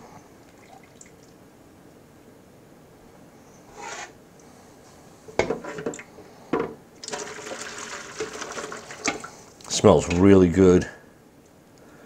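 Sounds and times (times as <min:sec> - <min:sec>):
liquid splashing through strainer: 0:07.0 - 0:09.3.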